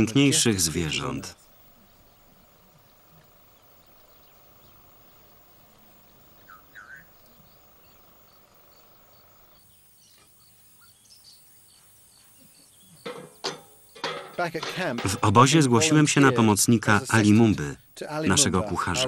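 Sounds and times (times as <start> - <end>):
insects ticking: 0.0 - 19.0
short rising bird calls: 1.4 - 9.6.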